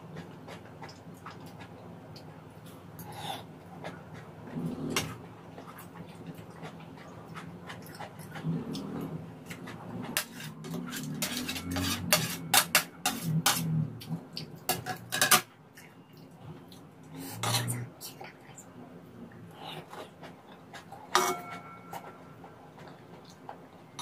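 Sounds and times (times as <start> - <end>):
chewing: 0.0 - 12.2
metal spoon scraping a pan: 10.1 - 13.8, 14.7 - 15.5, 17.2 - 17.9, 21.1 - 22.2.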